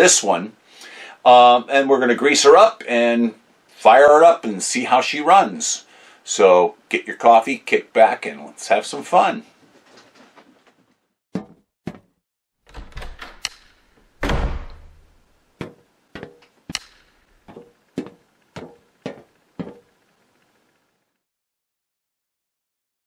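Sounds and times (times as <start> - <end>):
sharp knocks and bangs: 13.4 - 19.9.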